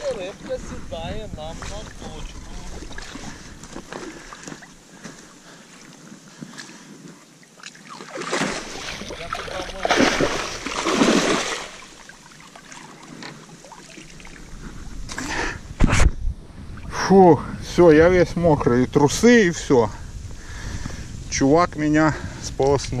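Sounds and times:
fish thrashing and splashing in water: 0:07.6 - 0:14.4.

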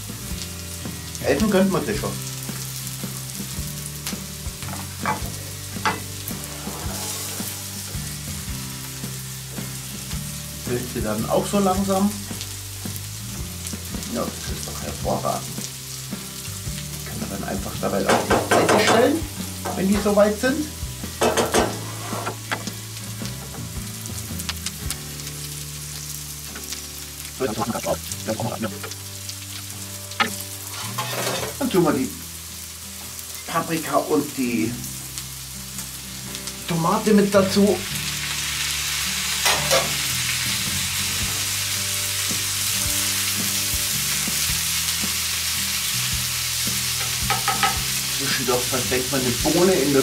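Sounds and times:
mushrooms sizzling in butter: 0:00.0 - 0:50.0
spoon knocking on pan: 0:04.6 - 0:06.2, 0:18.1 - 0:19.8, 0:21.2 - 0:22.7, 0:47.0 - 0:47.9
wooden spatula scraping a pan: 0:04.7 - 0:08.4, 0:21.2 - 0:22.8, 0:29.6 - 0:31.7.

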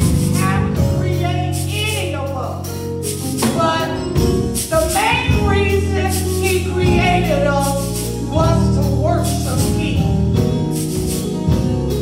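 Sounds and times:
gospel group singing with band: 0:03.4 - 0:07.4.

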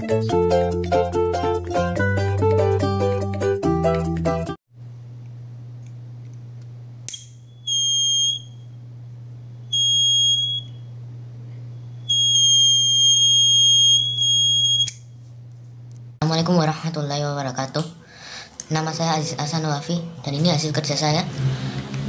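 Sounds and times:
low steady hum: 0:04.8 - 0:20.6
buzzer steady high tone: 0:07.5 - 0:08.7, 0:09.7 - 0:10.9, 0:12.0 - 0:15.0.

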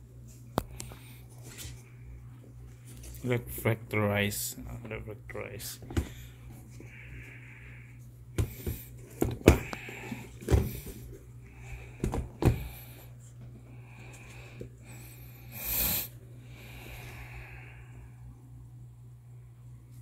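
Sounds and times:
sneakers knocking and bumping: 0:08.4 - 0:09.7.

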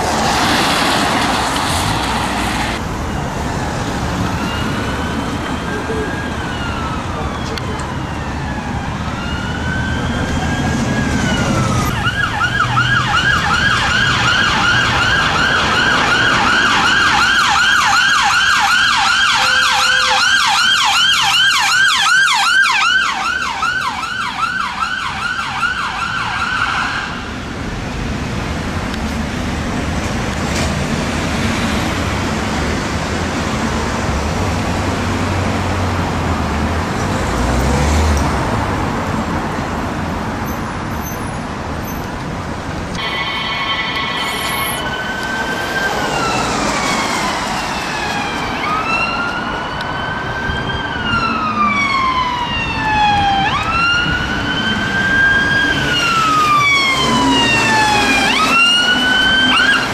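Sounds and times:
road traffic noise: 0:00.0 - 0:59.9
ambulance siren wailing and yelping: 0:02.8 - 0:27.4, 0:43.0 - 0:59.9.

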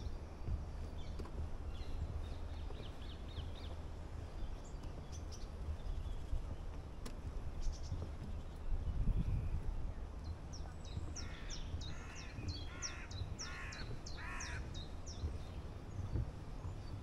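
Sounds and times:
songbirds chirping and singing: 0:07.5 - 0:17.0.

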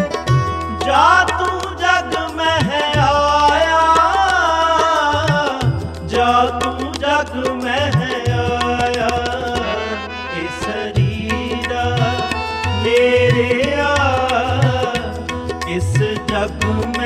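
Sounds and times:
sustained instrumental melody: 0:00.0 - 0:03.8, 0:08.6 - 0:14.0
tabla rhythm: 0:00.0 - 0:17.0.

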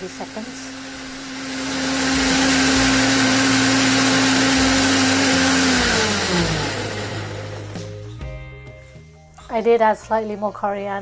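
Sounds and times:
blender motor running: 0:00.0 - 0:08.0.

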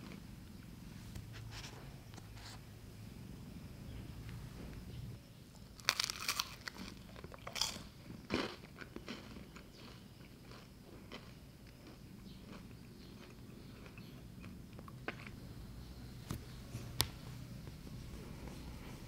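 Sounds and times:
crunchy bites into bread: 0:05.8 - 0:09.2.

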